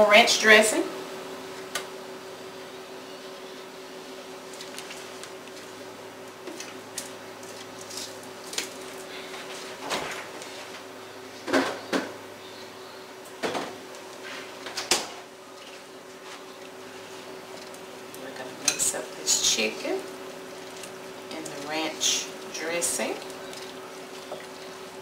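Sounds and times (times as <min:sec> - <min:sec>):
faint steady hum: 0:00.0 - 0:25.0.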